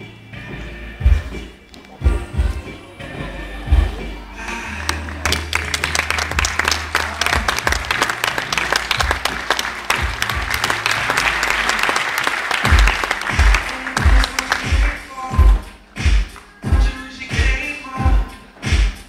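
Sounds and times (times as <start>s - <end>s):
heavy low bass beats: 0.0s - 19.0s
music with bass: 0.0s - 19.0s
audience applauding: 4.5s - 15.3s.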